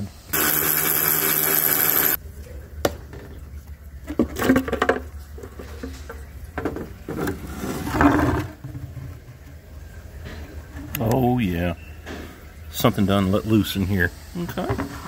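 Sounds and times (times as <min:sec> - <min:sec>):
cordless ratchet spinning: 0:00.3 - 0:02.2.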